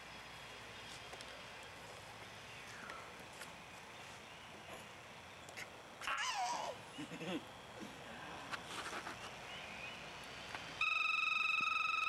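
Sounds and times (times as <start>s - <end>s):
baby squealing: 6.1s - 6.8s.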